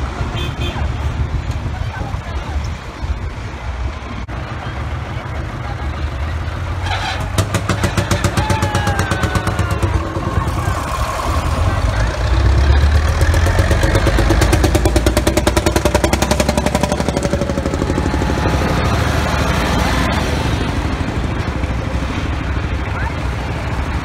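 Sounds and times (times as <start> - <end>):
tractor engines running: 0.0 - 24.0
diesel engine rapid even beat: 4.9 - 24.0.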